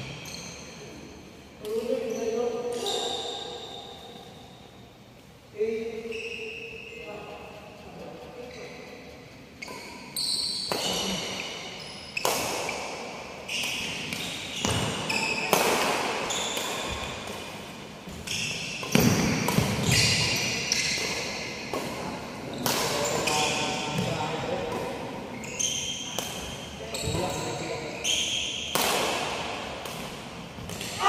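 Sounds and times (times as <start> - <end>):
sneakers squeaking on wooden floor: 0.0 - 4.3, 6.0 - 7.4, 8.4 - 17.4, 18.0 - 28.8
racket hitting shuttlecock: 12.2 - 25.2, 25.9 - 27.2, 28.6 - 31.0.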